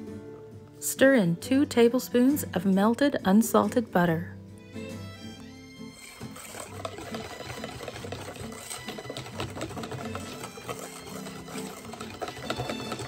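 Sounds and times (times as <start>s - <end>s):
whisk rattling in metal bowl: 5.9s - 13.0s.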